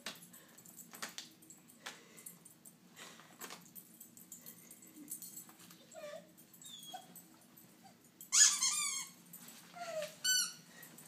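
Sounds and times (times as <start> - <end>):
dog whining: 5.8 - 7.2, 7.9 - 10.6
dog high cry: 8.4 - 9.2.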